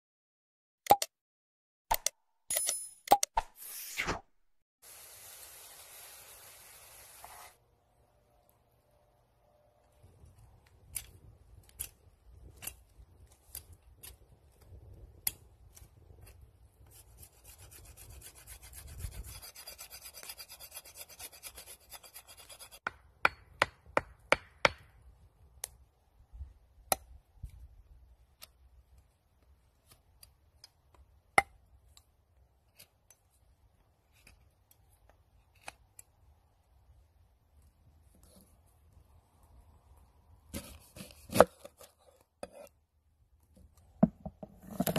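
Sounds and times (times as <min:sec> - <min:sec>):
knife carving wooden stick: 0:15.2 - 0:24.8, 0:34.0 - 0:36.1, 0:40.5 - 0:42.8.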